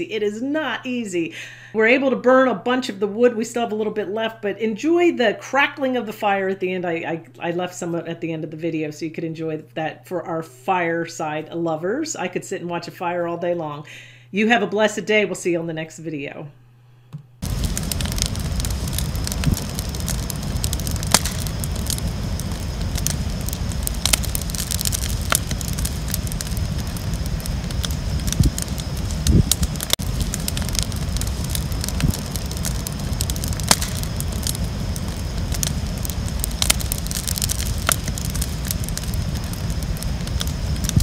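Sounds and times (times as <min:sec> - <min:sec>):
bonfire crackling and popping: 0:17.4 - 0:41.0
low fire rumble: 0:17.4 - 0:41.0.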